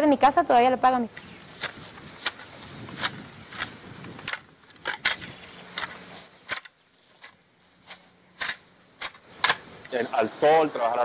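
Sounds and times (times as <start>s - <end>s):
hoe chopping into soil: 1.2s - 9.8s.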